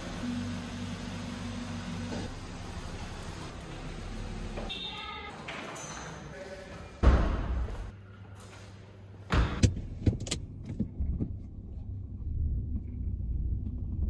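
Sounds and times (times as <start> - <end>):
car engine rumbling inside cabin: 9.7 - 14.0.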